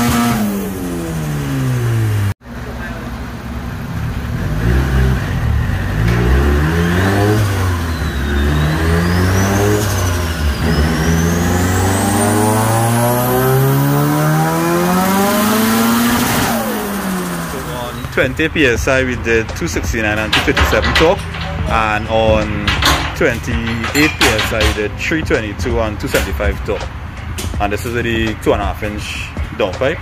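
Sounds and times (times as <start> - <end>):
car engine revving: 0.0 - 30.0
turbo whistle: 6.9 - 12.4.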